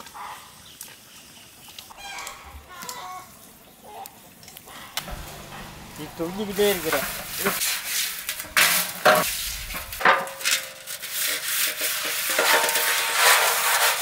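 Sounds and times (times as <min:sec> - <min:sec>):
metal pot being scraped by hand: 0:06.7 - 0:14.0.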